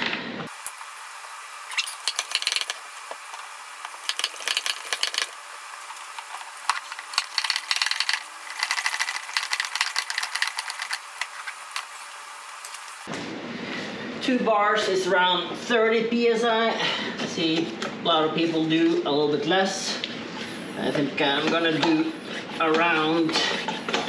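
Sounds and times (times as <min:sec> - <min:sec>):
plastic clicking and rattling: 0:06.7 - 0:11.0.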